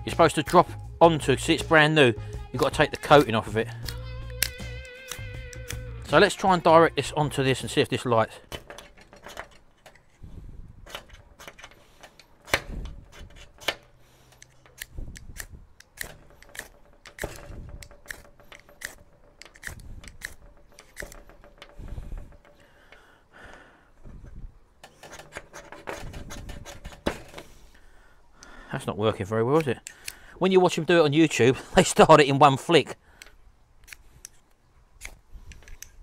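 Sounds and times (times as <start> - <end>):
fire steel scraping: 0.0 - 23.1, 24.0 - 27.9.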